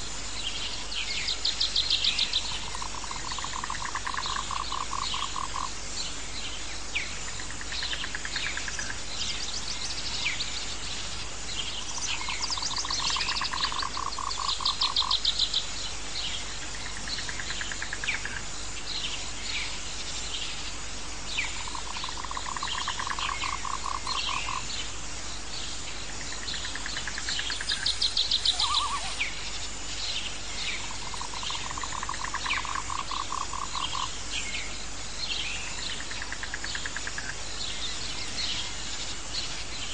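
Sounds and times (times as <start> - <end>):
steady hiss: 0.0 - 39.9
short high chirps and trills: 27.7 - 29.3.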